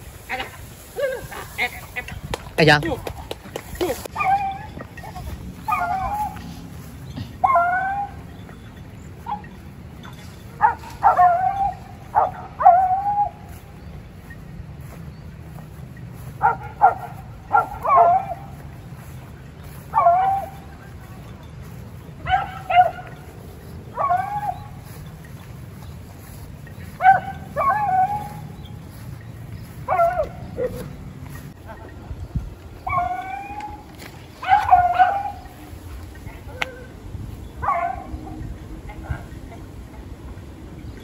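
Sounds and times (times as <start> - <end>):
hounds baying: 3.7 - 41.0.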